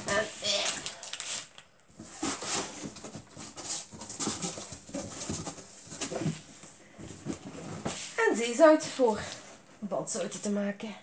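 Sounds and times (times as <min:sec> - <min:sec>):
cardboard box rustling: 0:00.0 - 0:08.4.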